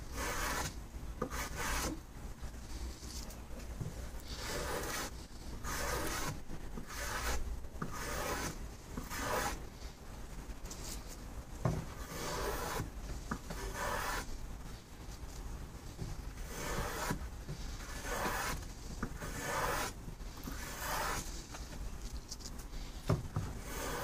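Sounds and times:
hand plane shaving wood: 0.2 - 0.7, 1.3 - 1.9, 4.4 - 9.6, 12.1 - 12.8, 13.6 - 14.2, 16.5 - 17.2, 17.9 - 18.6, 19.2 - 19.9, 20.5 - 21.2, 23.6 - 24.0.

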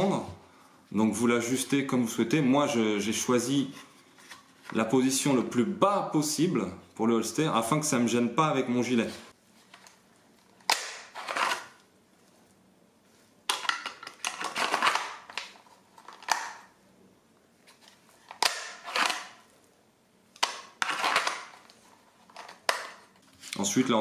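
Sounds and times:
plastic scraping in holster: 10.7 - 11.8, 17.7 - 19.4, 20.5 - 23.3.

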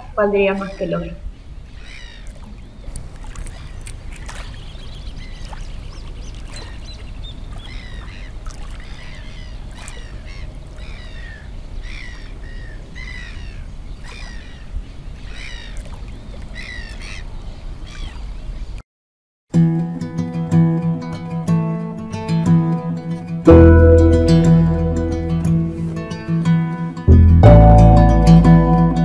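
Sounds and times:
bird harsh calls: 0.6 - 18.3.

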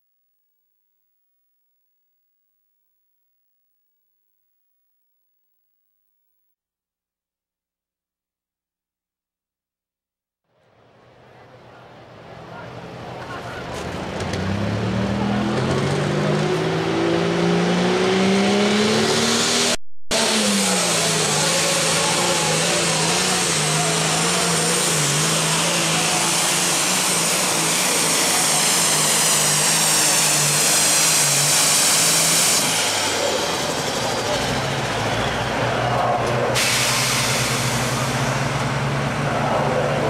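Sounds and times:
high turbo whine: 12.0 - 40.0
tractor engine at full throttle: 12.3 - 40.0.

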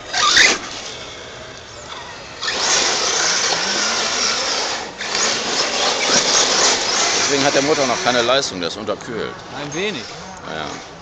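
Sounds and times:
electric motor whine: 0.0 - 8.8
tyres rushing on gravel: 2.5 - 10.0.

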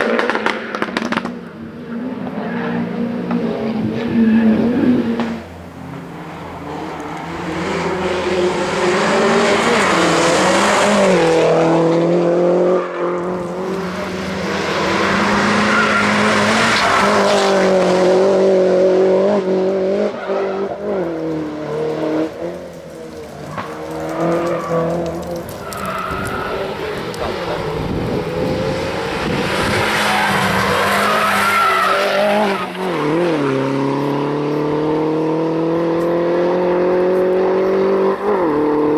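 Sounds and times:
race car engine revving: 0.0 - 38.9
tyre squeal: 15.2 - 17.2, 23.4 - 27.8, 29.7 - 33.5.

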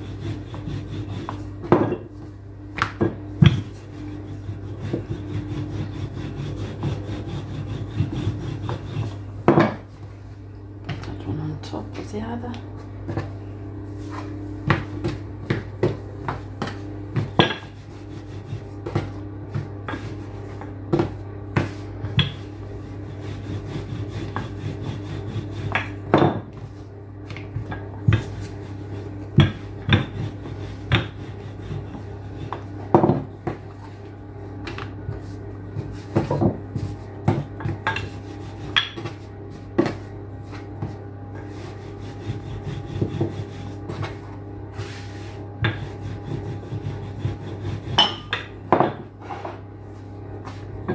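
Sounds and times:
rolling pin on dough: 0.0 - 10.2, 13.1 - 50.9
steady low hum: 0.0 - 50.9
knocks and taps of dough: 14.6 - 17.6.

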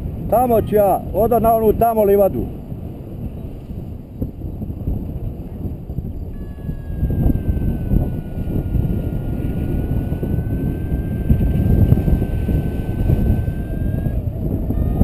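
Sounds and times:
wind buffeting microphone: 0.0 - 15.0
faint high wavering tone: 5.7 - 15.0.

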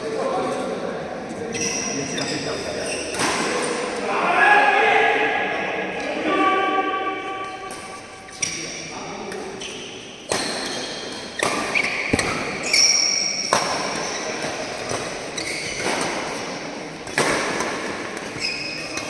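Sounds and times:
shoe squeaks on court: 1.5 - 3.3, 9.6 - 16.0, 18.4 - 19.0
racket hitting shuttlecock: 10.2 - 19.0.

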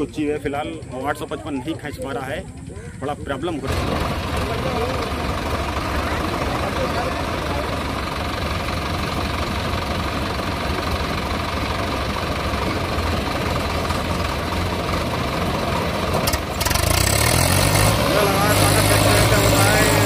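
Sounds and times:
diesel tractor engines running: 0.0 - 20.0.

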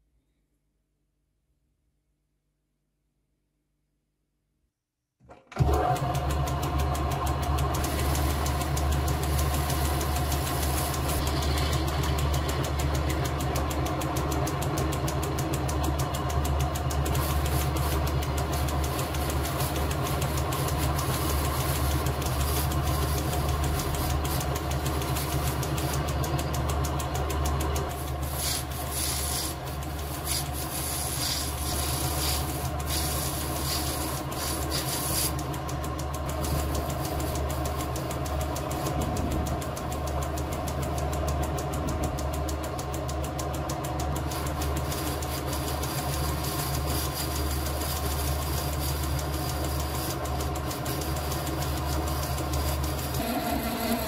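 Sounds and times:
metal lathe running with a hum: 5.6 - 54.0
cutting tool scratching brass: 17.1 - 27.0, 27.8 - 35.5, 44.2 - 54.0.

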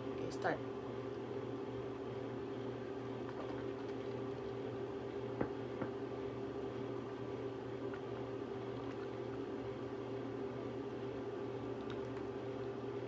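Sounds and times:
mechanical motor hum: 0.0 - 13.0.

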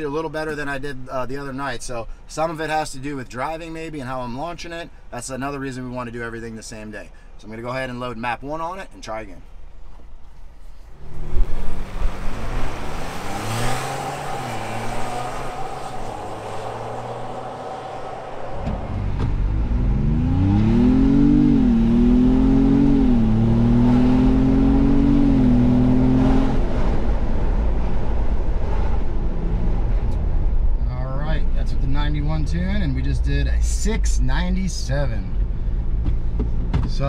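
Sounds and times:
car engine accelerating: 11.0 - 36.9.

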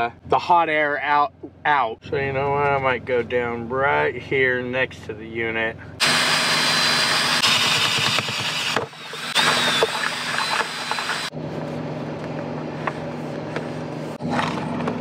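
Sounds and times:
cordless drill boring: 6.0 - 11.3
low steady hum: 11.2 - 15.0.

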